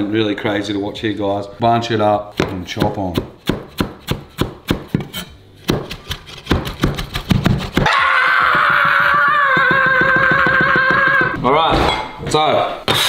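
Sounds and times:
knife chopping on wooden board: 2.4 - 7.9.

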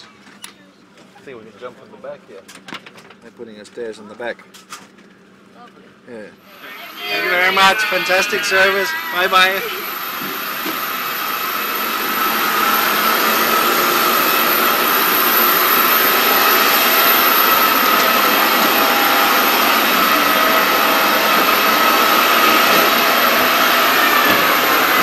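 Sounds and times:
jet turbine whine and hiss: 6.5 - 25.0.

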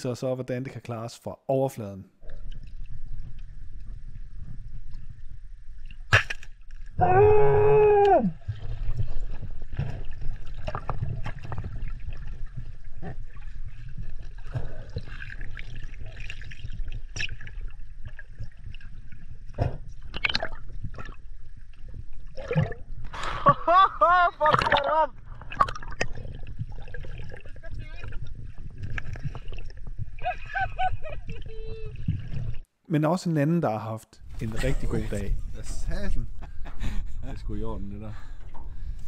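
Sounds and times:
water sloshing and gurgling: 2.1 - 32.8, 34.2 - 39.0
low rumble: 34.2 - 39.0.

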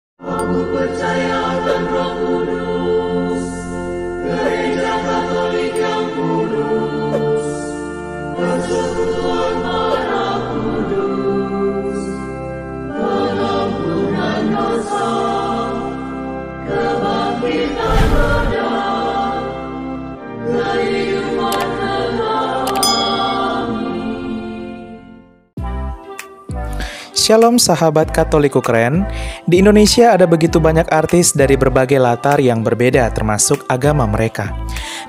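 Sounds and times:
choir singing held chords: 0.2 - 25.3.

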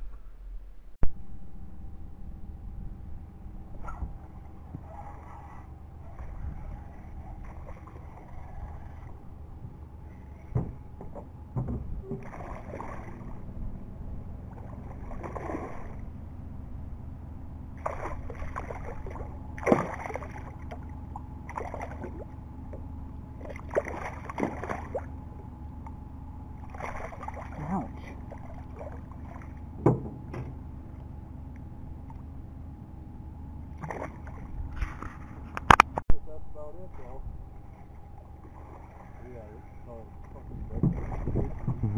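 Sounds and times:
steady low hum: 0.0 - 41.9
fish splashing and thrashing in water: 4.7 - 16.2, 17.7 - 25.3, 26.5 - 29.8, 33.7 - 35.9, 37.4 - 41.9.

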